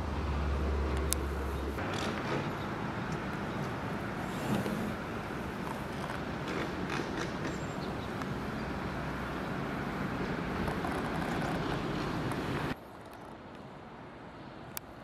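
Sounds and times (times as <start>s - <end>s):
outdoor background rushing noise: 0.0s - 15.0s.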